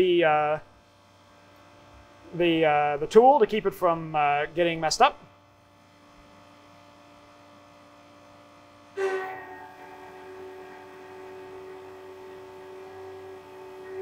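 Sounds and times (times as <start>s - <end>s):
faint machine hum: 0.0s - 14.0s
steady machine whine: 0.0s - 14.0s.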